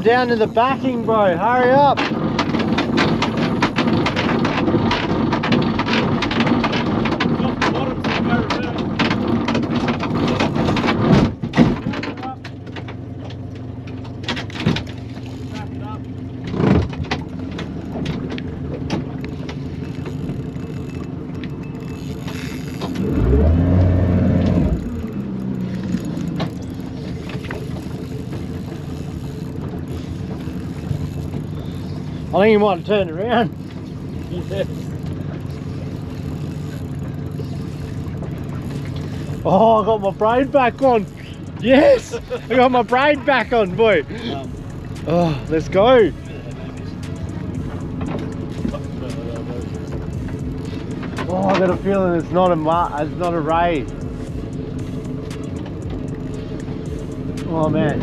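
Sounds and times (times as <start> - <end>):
fishing reel drag ticking: 0.0 - 6.7, 14.8 - 16.4, 19.2 - 58.0
boat motor running: 0.0 - 58.0
steady low hum: 12.6 - 58.0.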